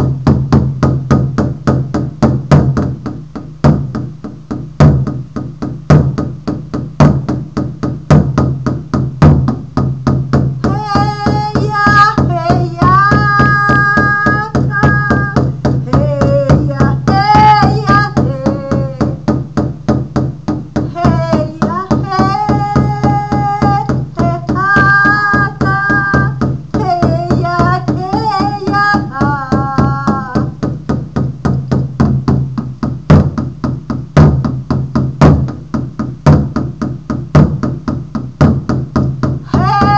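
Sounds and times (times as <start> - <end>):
frame drum beating: 0.0 - 39.9
woman chanting: 10.7 - 19.3, 20.9 - 30.6, 39.5 - 39.9.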